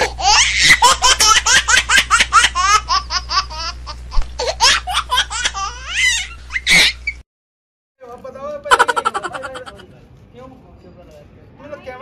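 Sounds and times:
high-pitched laughter: 0.0s - 3.8s, 4.4s - 7.2s, 8.7s - 9.8s.

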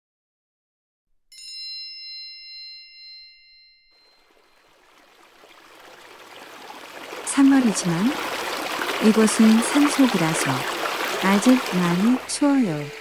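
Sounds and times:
bell-like chime: 1.3s - 4.7s
stream flowing over rocks: 4.1s - 13.0s.

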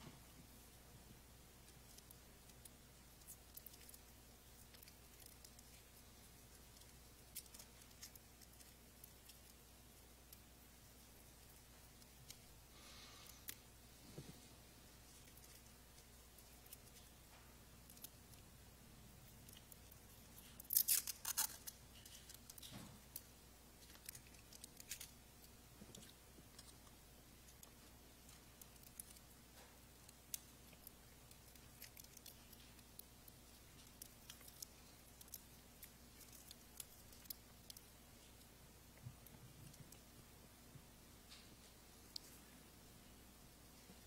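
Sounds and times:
plastic packaging crinkling: 19.4s - 23.2s, 23.8s - 25.2s.

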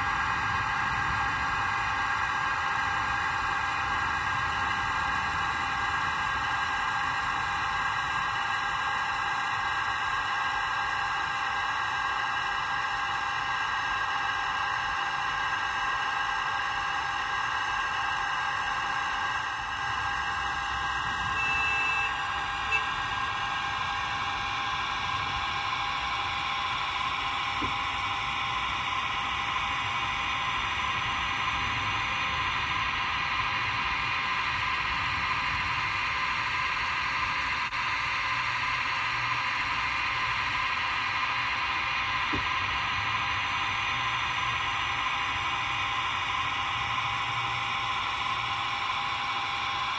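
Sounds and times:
model train electric whine and hum: 0.0s - 49.9s
short high beep: 21.3s - 22.1s.

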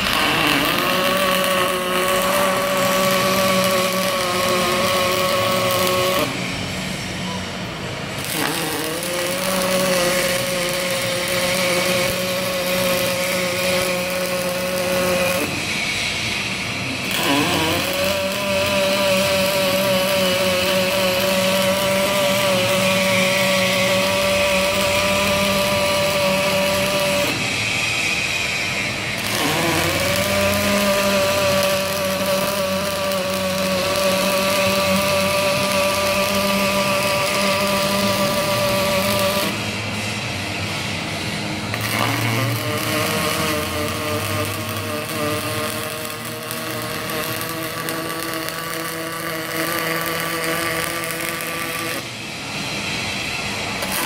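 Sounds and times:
welding arc buzzing: 0.0s - 54.0s.

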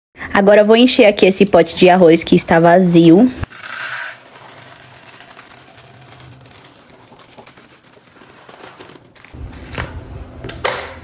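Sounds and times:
rice pouring into plastic container: 3.5s - 9.0s.

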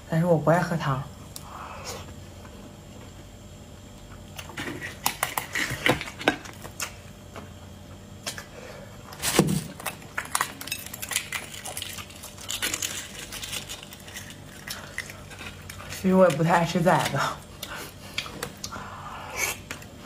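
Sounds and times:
eggshells cracking: 9.7s - 17.7s.

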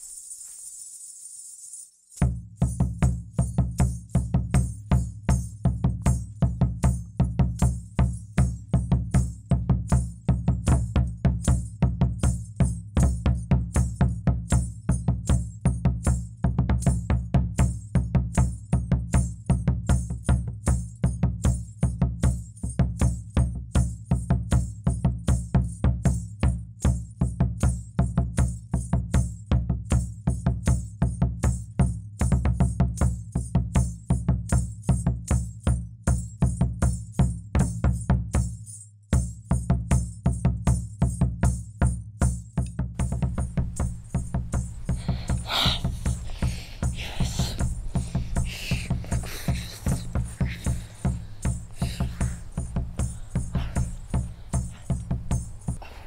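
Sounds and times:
fast percussive music: 43.0s - 55.9s.

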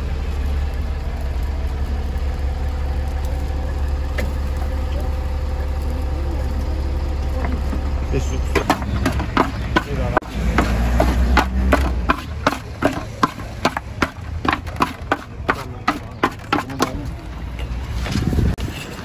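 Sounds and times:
low rumble: 0.0s - 14.4s
spatulas scraping metal pan: 8.6s - 17.0s.

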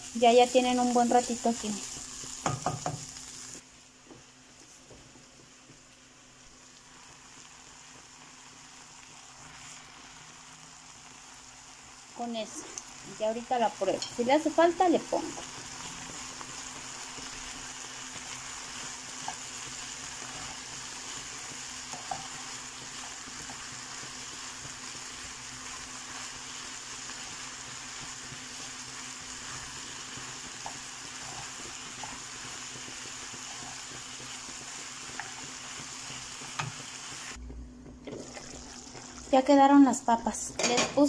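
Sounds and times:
vegetables sizzling in a pan: 0.0s - 37.4s, 38.1s - 41.0s
wooden spoon tapping pan: 2.4s - 3.1s.

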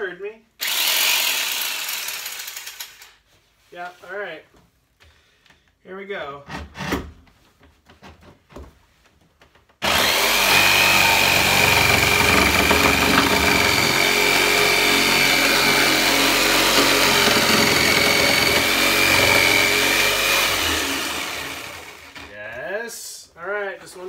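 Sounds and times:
jigsaw motor whine: 0.6s - 2.9s, 9.8s - 22.3s
jigsaw cutting through wood board: 0.6s - 3.0s, 9.8s - 22.3s.

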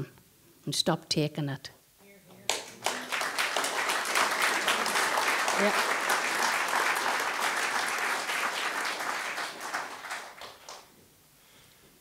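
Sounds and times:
audience applauding: 2.5s - 10.9s.

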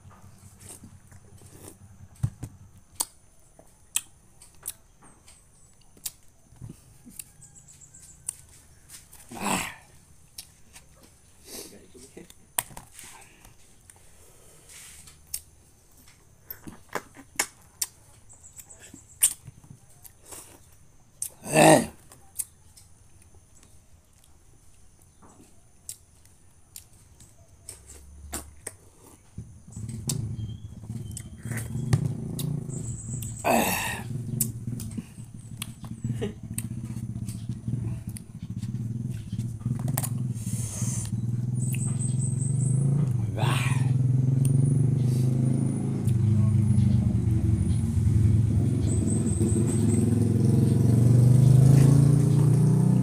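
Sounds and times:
fruit rind cracking: 2.9s - 3.2s, 12.2s - 12.9s, 16.7s - 18.0s
low motor rumble: 29.4s - 53.0s.

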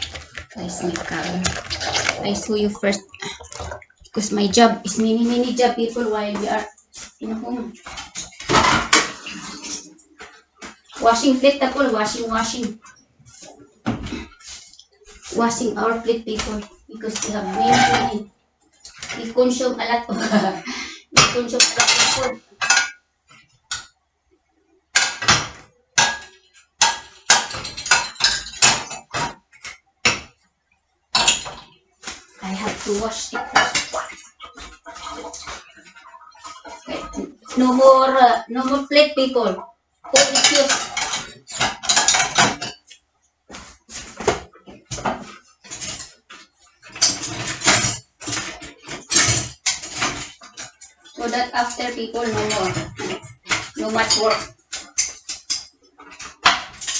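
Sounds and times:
dishes clattering and clinking: 0.0s - 5.2s, 6.4s - 11.0s, 16.4s - 18.2s, 21.1s - 23.4s, 24.9s - 30.4s, 31.1s - 37.7s, 40.0s - 56.9s.

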